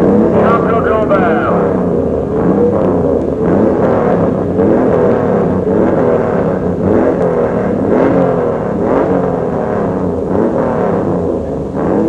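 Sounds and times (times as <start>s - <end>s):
racing motorcycle engines revving: 0.0s - 12.0s.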